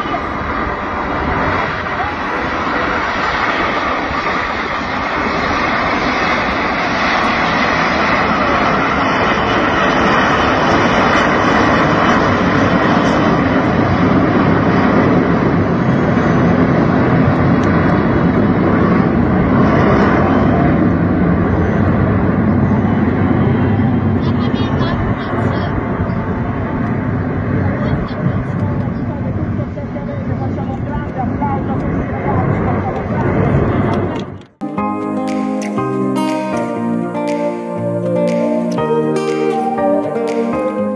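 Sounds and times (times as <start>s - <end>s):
jets flying overhead: 0.0s - 30.6s.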